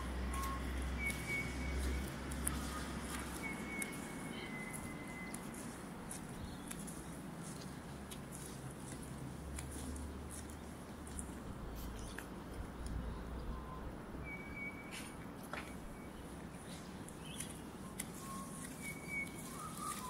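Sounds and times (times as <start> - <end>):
whistled calls: 0.0 - 5.4, 13.5 - 15.0, 17.2 - 20.0
bird chirps: 0.0 - 5.7, 13.5 - 15.0, 15.9 - 20.0.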